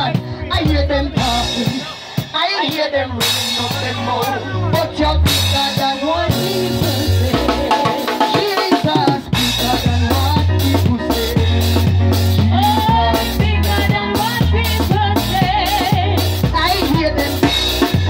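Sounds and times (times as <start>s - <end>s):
sustained bass line: 0.0s - 1.9s, 3.0s - 8.1s, 8.9s - 18.0s
drum kit beat: 0.0s - 18.0s.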